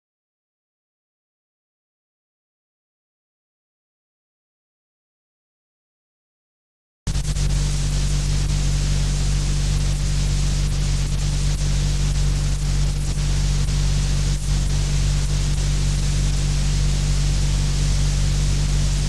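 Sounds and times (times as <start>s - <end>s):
constant hiss: 7.1s - 19.0s
electrical hum: 7.1s - 19.0s.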